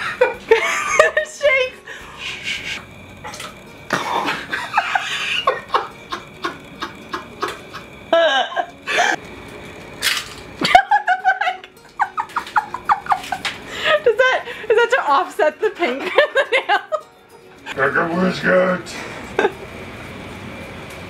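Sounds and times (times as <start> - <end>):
person laughing: 0.0 - 2.8, 3.9 - 9.2, 10.6 - 14.8, 16.0 - 17.0, 19.0 - 19.6.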